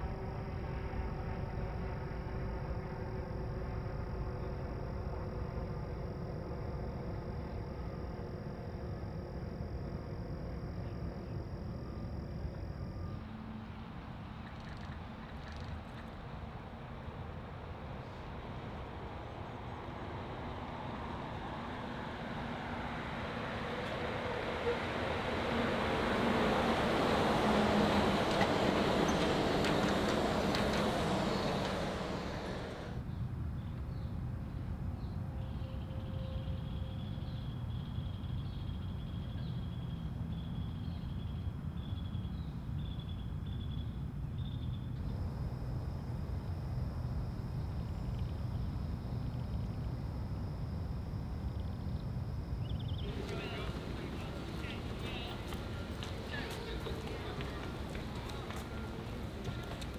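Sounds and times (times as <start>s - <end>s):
high whine: 0.0s - 13.3s, 26.8s - 33.0s, 44.8s - 59.9s
monorail train passing: 0.0s - 59.9s.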